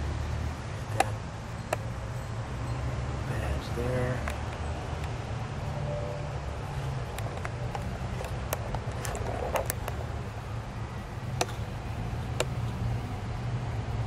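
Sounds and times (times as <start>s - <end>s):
light clicks and taps: 4.2s - 5.2s, 11.3s - 12.8s.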